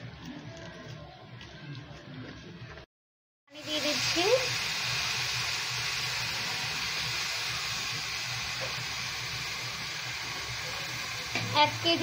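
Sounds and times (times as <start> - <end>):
rice sizzling in frying pan: 3.6 - 12.0.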